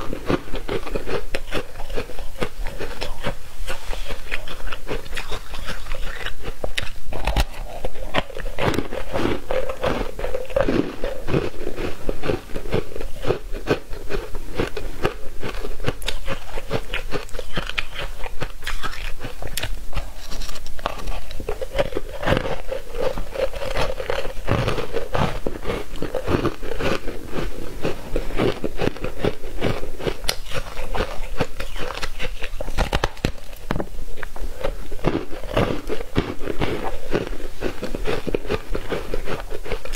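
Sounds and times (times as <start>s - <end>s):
chewing crunchy ice: 0.0s - 39.9s.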